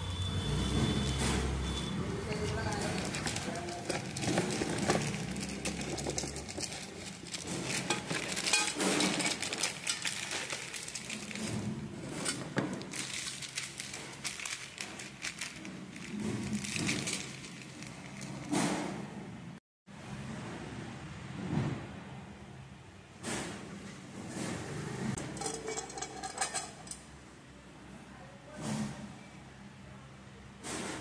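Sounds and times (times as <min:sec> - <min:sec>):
plastic wrapping crinkling: 0:02.1 - 0:18.6
sharp clicks and crackles: 0:02.3 - 0:18.6.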